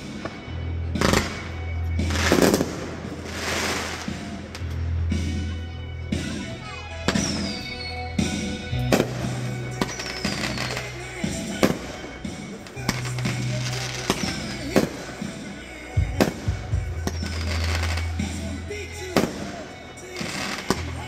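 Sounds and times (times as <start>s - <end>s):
music: 0.0s - 21.0s
firework whistles: 7.1s - 9.1s, 9.7s - 11.7s, 13.2s - 14.8s, 17.0s - 18.5s.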